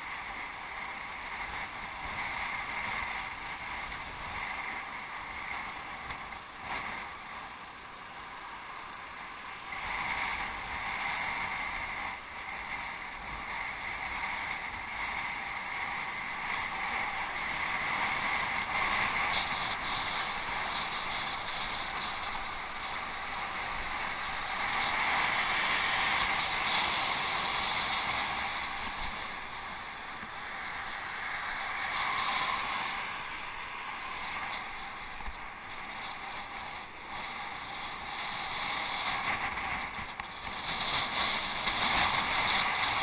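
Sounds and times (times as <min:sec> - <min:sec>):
bicycle riding off-road: 0:00.0 - 0:43.0.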